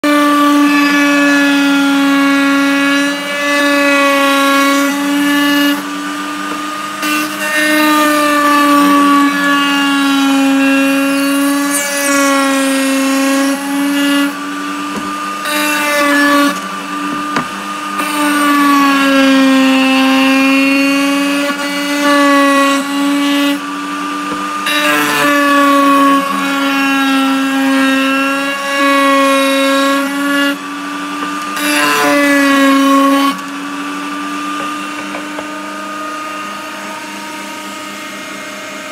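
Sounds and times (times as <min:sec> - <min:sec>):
router whining while cutting wood: 0:00.0 - 0:38.9.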